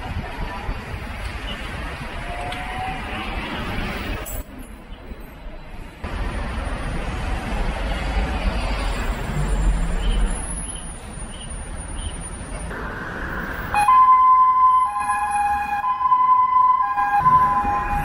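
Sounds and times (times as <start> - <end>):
city street traffic rumble: 0.0 - 18.0
electronic two-tone siren: 13.7 - 18.0.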